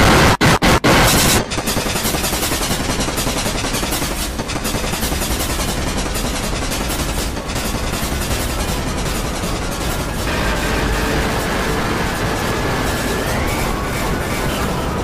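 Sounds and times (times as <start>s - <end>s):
burst of static: 0.0s - 2.3s, 10.0s - 15.0s
distorted noise: 0.0s - 3.5s, 8.2s - 15.0s.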